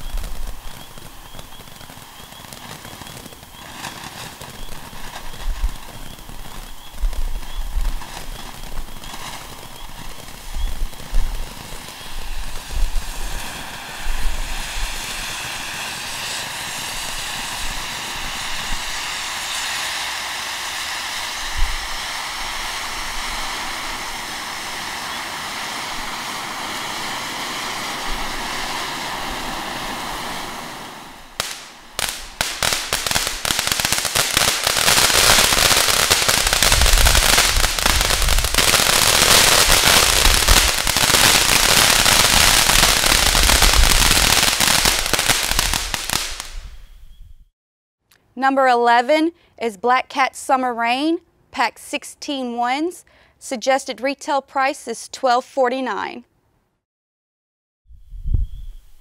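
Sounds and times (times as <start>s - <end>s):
fireworks fountain hissing: 0.0s - 46.9s
fireworks crackling: 0.0s - 47.0s.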